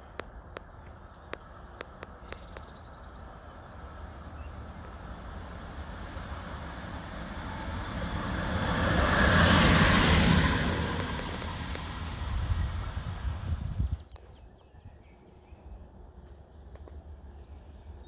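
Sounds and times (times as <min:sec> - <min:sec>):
locomotive passing at speed: 0:03.7 - 0:14.1
wind rumbling on microphone: 0:04.5 - 0:16.3.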